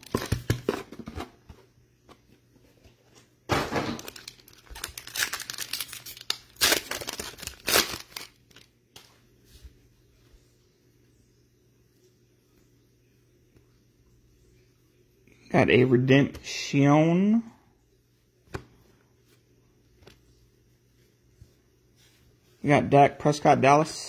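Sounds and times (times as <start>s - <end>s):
plastic wrapper tearing and crinkling: 3.9s - 9.1s.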